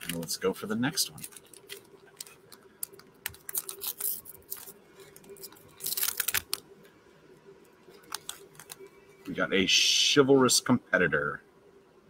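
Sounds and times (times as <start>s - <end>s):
foil wrapper crinkling and tearing: 0.0s - 6.6s, 7.9s - 8.9s.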